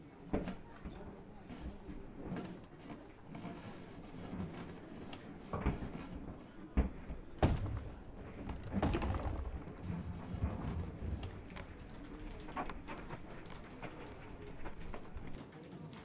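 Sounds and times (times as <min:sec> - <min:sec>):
scattered knocks and bumps: 0:05.4 - 0:15.4.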